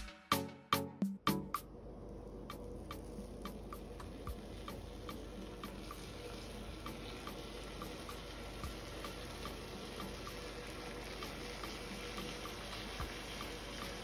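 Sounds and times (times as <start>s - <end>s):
light ticking beat: 0.0s - 14.0s
soft hiss: 1.6s - 14.0s.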